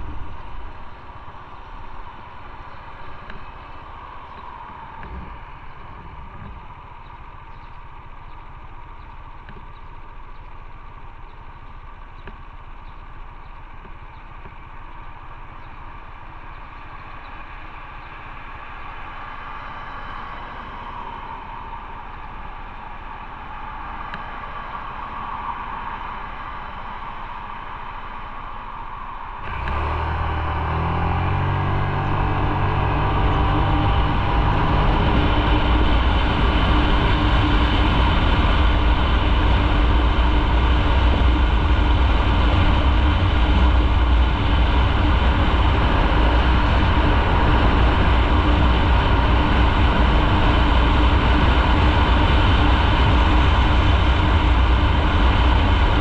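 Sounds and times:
wind noise: 19.8 - 56.0
motorcycle engine: 25.7 - 56.0.

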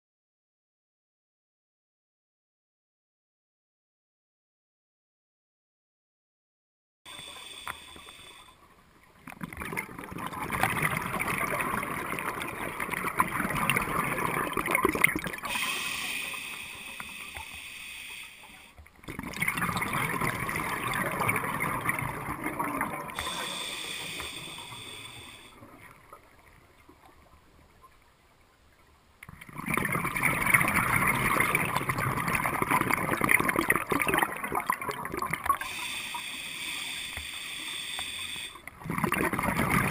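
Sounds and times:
diver inhaling through regulator: 7.1 - 8.6, 15.4 - 18.8, 23.2 - 25.6, 35.6 - 38.7
gurgling exhaled bubbles underwater: 9.2 - 16.2, 18.9 - 27.5, 29.3 - 35.8, 38.6 - 39.9.

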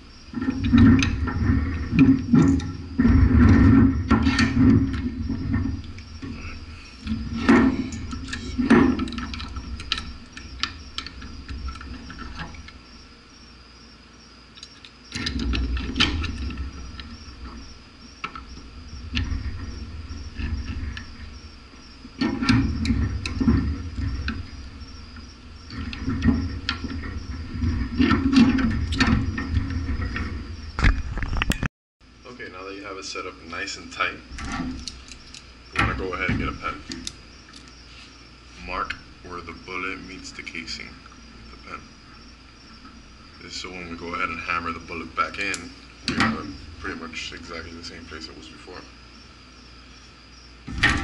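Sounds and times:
crickets chirping: 0.0 - 51.0
metal clicks and knocks: 0.3 - 12.8, 14.6 - 31.7, 34.3 - 37.8, 45.3 - 47.0.

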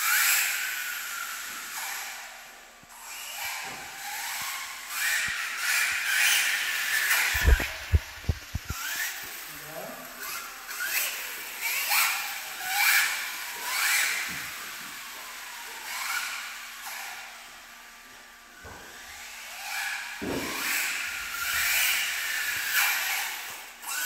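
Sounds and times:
rc car tyres hissing and squeaking: 0.0 - 17.9, 18.6 - 24.0
rc car motor whine: 0.0 - 24.0
short thump: 7.3 - 8.6.

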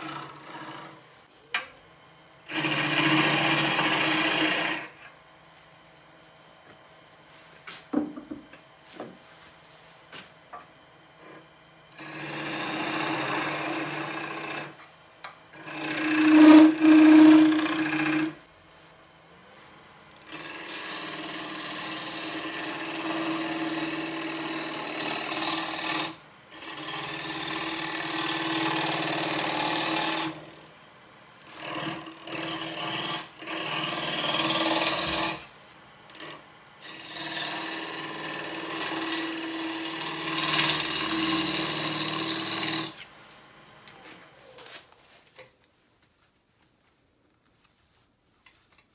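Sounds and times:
gouge scraping wood: 0.0 - 1.0, 12.0 - 14.7, 15.6 - 18.3
lathe humming: 0.0 - 1.0, 2.4 - 5.0, 11.2 - 14.8, 15.5 - 18.4, 20.2 - 30.6, 31.4 - 35.5, 36.1 - 43.0.

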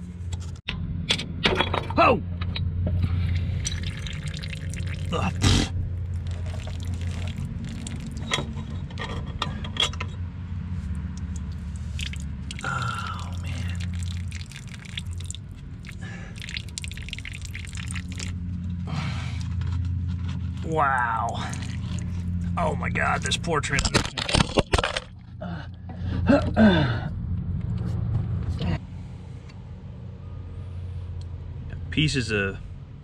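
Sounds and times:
steady low hum: 0.0 - 24.3
oil trickling and dripping: 3.0 - 9.0, 10.9 - 19.6, 21.2 - 22.6.

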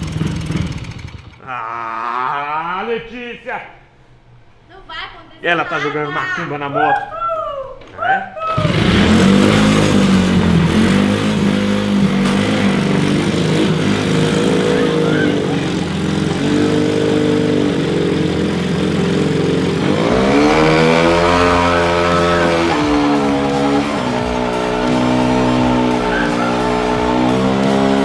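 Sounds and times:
motorcycle engine revving: 0.0 - 1.5, 8.5 - 28.0.

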